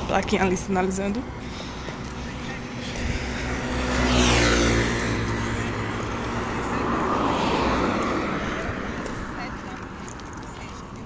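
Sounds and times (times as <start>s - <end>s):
vehicles passing on highway: 0.0s - 11.0s.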